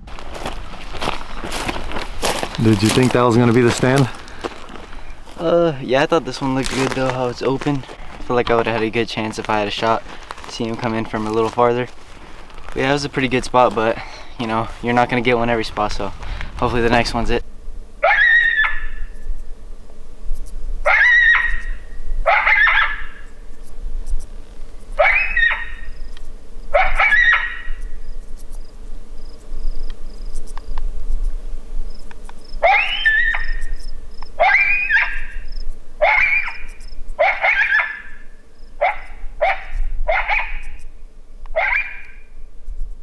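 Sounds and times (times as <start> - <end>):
shrill animal cries: 18.0 - 19.1, 20.8 - 23.2, 25.0 - 25.9, 26.7 - 27.8, 32.6 - 33.6, 34.4 - 35.4, 36.0 - 38.2, 38.8 - 40.8, 41.6 - 42.2.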